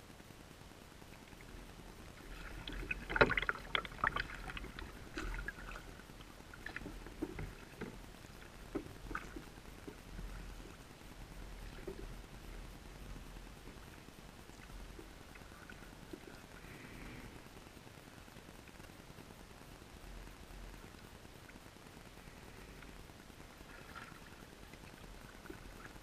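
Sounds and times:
faint water hiss: 0:00.0 - 0:26.0
underwater clicks and knocks: 0:02.3 - 0:06.0, 0:06.6 - 0:08.0, 0:08.6 - 0:10.8.

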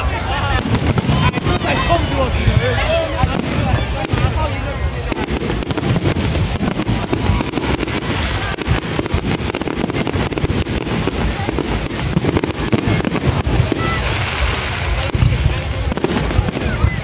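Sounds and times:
fireworks bangs and crackling: 0:00.0 - 0:17.0.

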